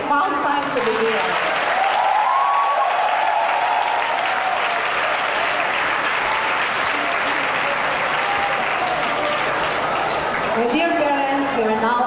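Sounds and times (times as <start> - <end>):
large crowd applauding: 0.4 - 11.2.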